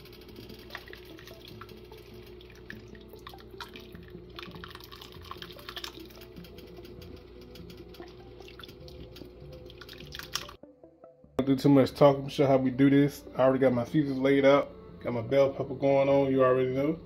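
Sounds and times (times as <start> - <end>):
steady low hum: 0.0 - 10.0, 11.6 - 17.0
ladle stirring wet sloshing: 0.5 - 6.8
drips and splats: 0.6 - 6.8, 7.9 - 10.6.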